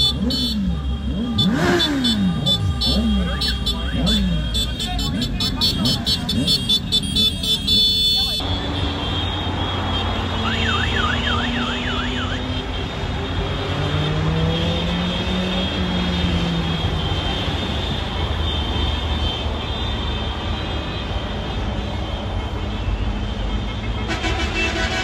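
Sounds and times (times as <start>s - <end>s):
warbling siren-like horn: 0.0s - 4.6s, 10.2s - 12.6s
road noise: 0.0s - 25.0s
vehicles driving past: 0.0s - 25.0s.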